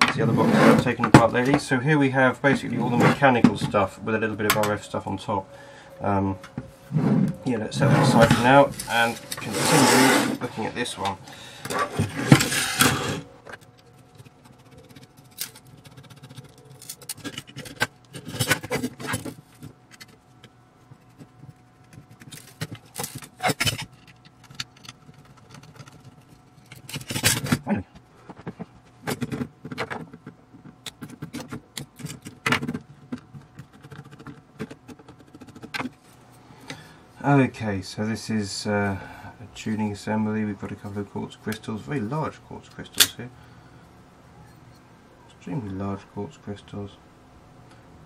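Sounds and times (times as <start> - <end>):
clinks and scrapes of metal parts: 2.5 - 20.2, 22.1 - 27.7.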